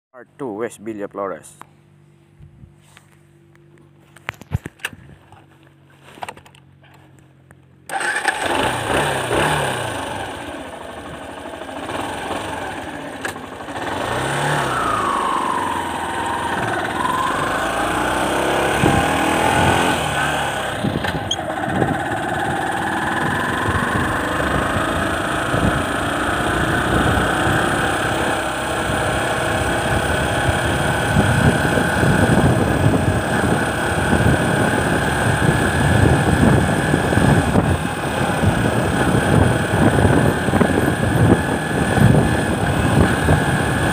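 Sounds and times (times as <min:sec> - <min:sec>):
motorcycle engine revving: 0:07.9 - 0:43.9.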